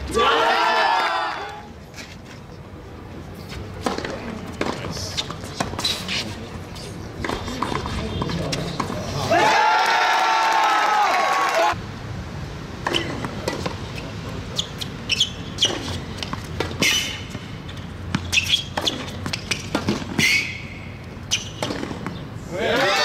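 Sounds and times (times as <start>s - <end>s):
crowd noise: 0.0s - 11.8s
sneakers squeaking: 3.4s - 9.3s, 12.9s - 23.0s
racket striking ball: 15.6s - 22.2s.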